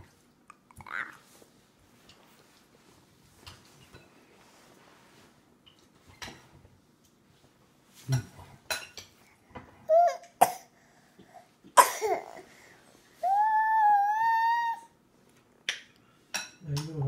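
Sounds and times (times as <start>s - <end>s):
baby vocal sound: 0.7s - 1.3s, 11.4s - 15.0s.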